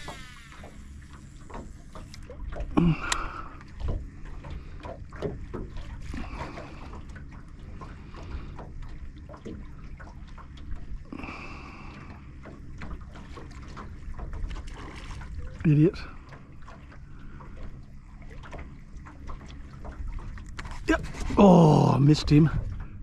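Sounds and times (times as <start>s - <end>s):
water lapping against boat hull: 0.0s - 23.0s
light knocks and clicks: 3.8s - 6.0s.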